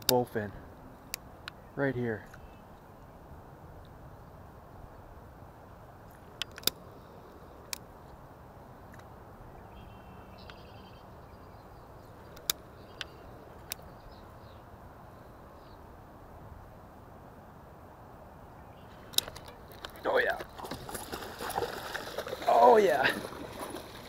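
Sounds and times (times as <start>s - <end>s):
faint bird chirps: 1.6s - 3.2s, 9.5s - 15.9s
sharp clicks: 6.4s - 6.8s, 12.3s - 13.9s, 19.1s - 20.0s.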